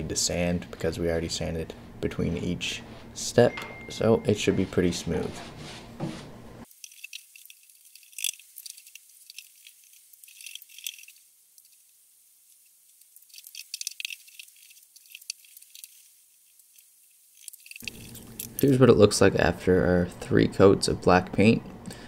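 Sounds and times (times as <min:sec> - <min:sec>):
paintbrush strokes on wood: 0:04.3 - 0:06.3.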